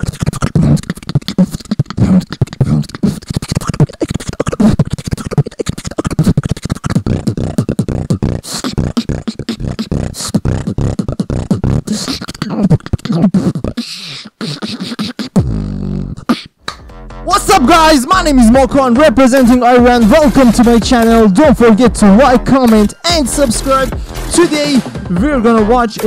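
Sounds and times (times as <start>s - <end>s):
beatboxing: 0.0s - 26.0s.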